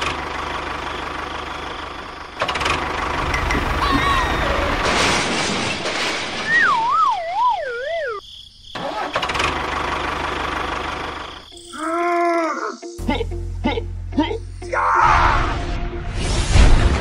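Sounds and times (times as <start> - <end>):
engine-like running noise: 0.0 - 5.2, 8.8 - 11.4
descending wobbling whistle: 6.4 - 8.2.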